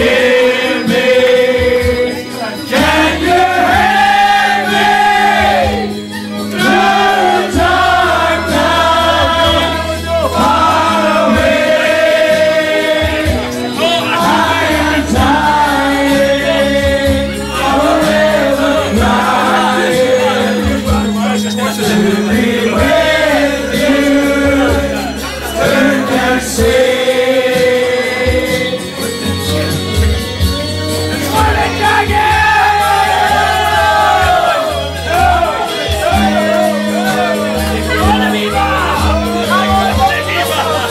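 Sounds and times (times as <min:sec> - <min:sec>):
crowd singing along: 0:00.0 - 0:40.9
music with steady bass line: 0:00.0 - 0:40.9.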